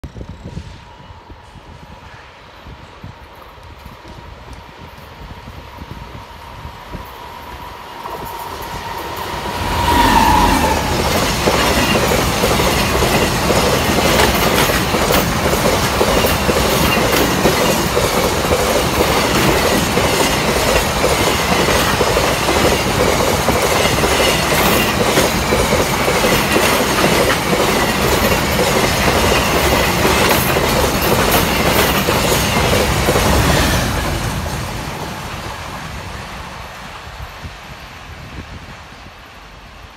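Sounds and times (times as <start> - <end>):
train wheels clattering and squealing: 7.0 - 35.1
steady tone: 7.4 - 12.6.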